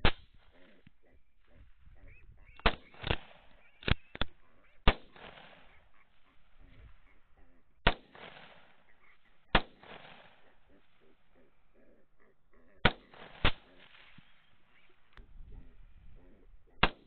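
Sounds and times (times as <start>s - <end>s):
rifle shots with echo: 2.6s - 11.4s, 12.8s - 15.1s, 16.8s - 17.0s.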